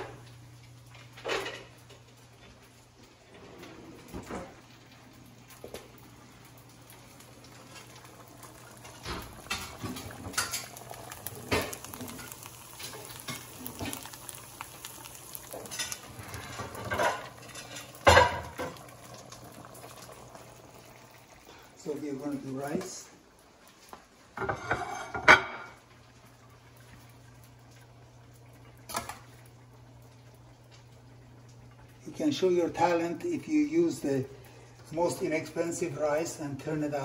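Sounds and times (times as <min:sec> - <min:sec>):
onions sizzling in a frying pan: 0:00.0 - 0:03.3, 0:04.0 - 0:37.0
pots and pans clinking: 0:01.1 - 0:02.0, 0:07.5 - 0:20.3, 0:24.4 - 0:25.8, 0:28.9 - 0:29.3.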